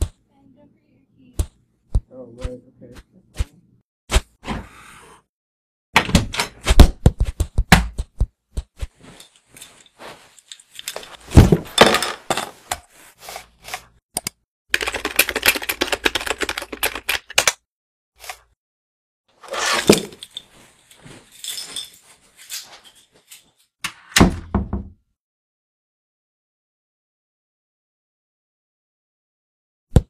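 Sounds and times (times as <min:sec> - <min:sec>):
keyboard typing: 0:14.2 - 0:17.6.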